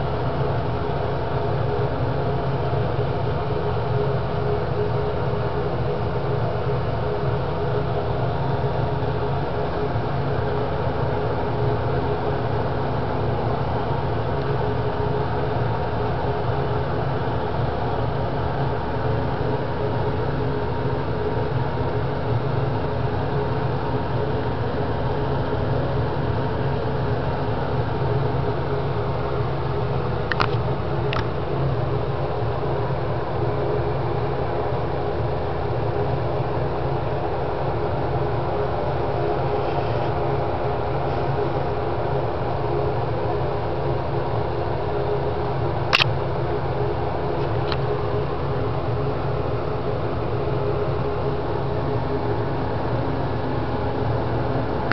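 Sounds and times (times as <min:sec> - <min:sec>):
exhaust fan running: 0:00.0 - 0:54.9
steady mechanical hum: 0:00.0 - 0:54.9.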